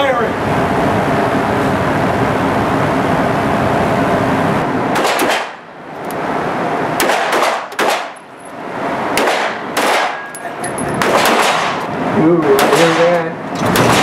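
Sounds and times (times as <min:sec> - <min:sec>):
steady rushing noise: 0:00.0 - 0:14.0
handgun shots echoing indoors: 0:05.0 - 0:05.6, 0:07.0 - 0:08.2, 0:11.0 - 0:11.8, 0:12.6 - 0:14.0.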